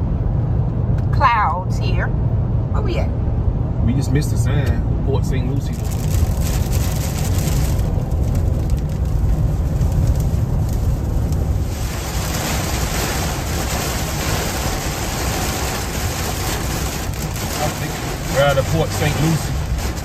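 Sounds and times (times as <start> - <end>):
road and engine rumble in a cabin: 0.0 - 20.0
heavy rain hitting windshield: 5.3 - 20.0.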